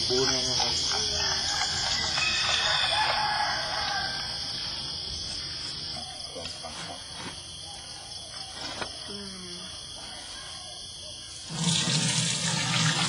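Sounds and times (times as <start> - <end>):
high-pitched insect chorus: 0.0 - 13.0
rooster crowing: 0.9 - 4.8.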